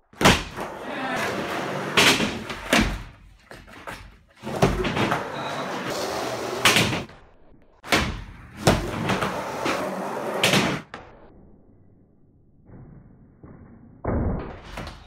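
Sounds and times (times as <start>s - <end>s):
skateboard clacks and slaps: 0.2s - 7.1s
skateboard wheels rolling: 0.6s - 7.1s, 8.6s - 10.9s.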